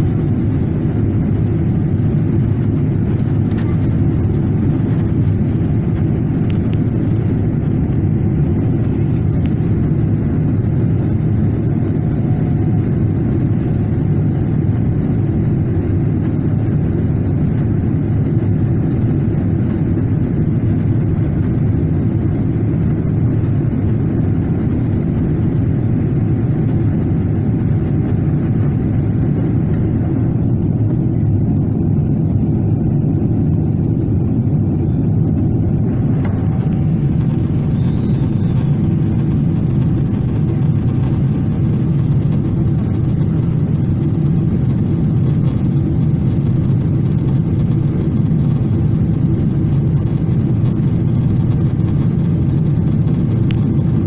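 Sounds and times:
aircraft cabin engine roar: 0.0 - 54.0.

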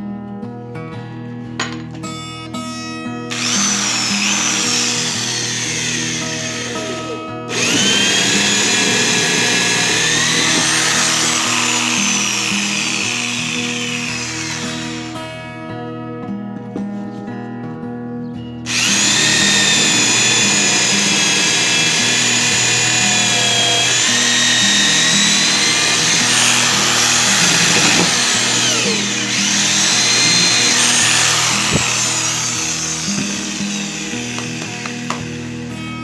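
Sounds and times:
electric drill whining into wood: 3.3 - 15.3, 18.7 - 35.4.

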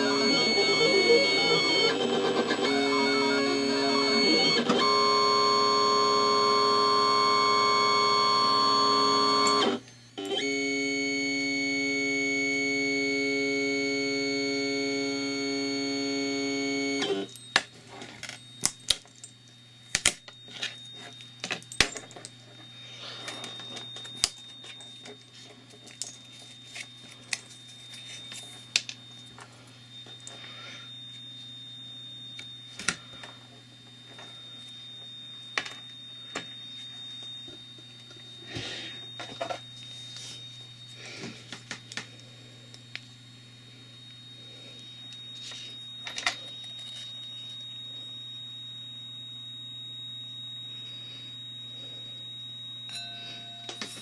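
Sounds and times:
stepper motors whining: 0.0 - 17.4
electrical hum: 0.0 - 54.0
high steady whine: 0.0 - 54.0.

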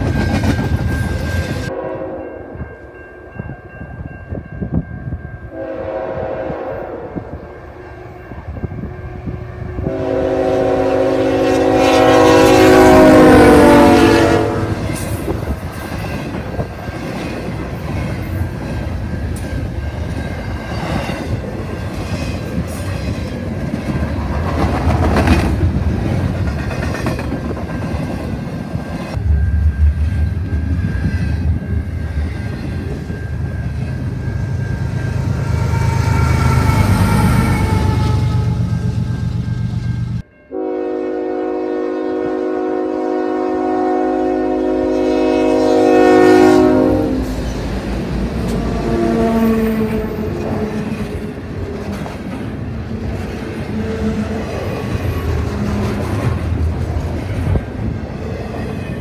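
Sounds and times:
train wheels clattering on rails: 0.0 - 1.7, 14.8 - 35.2, 50.3 - 59.0
diesel locomotive engine drone: 0.0 - 59.0
train horn: 1.2 - 2.8, 5.4 - 15.4, 34.5 - 39.6, 40.5 - 47.4, 48.4 - 51.4.

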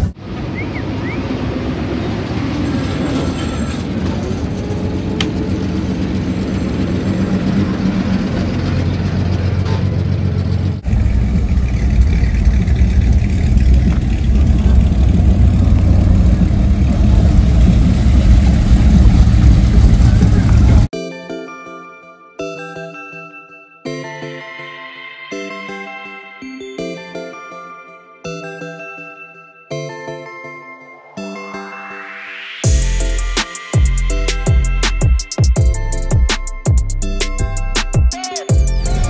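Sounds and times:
pickup truck engines droning: 0.0 - 20.9, 38.5 - 39.0.

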